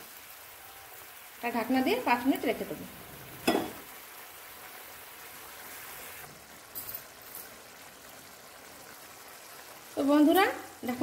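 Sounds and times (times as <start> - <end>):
curry simmering hiss: 0.0 - 11.0.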